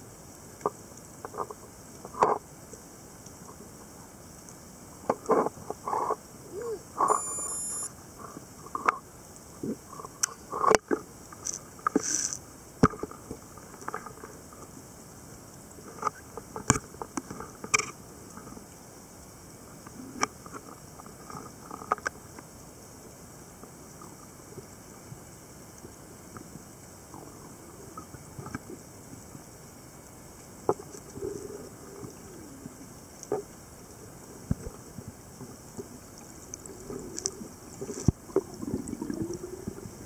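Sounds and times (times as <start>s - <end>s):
short high beep: 7.0s - 7.9s
short squeaky tones: 7.1s - 7.9s.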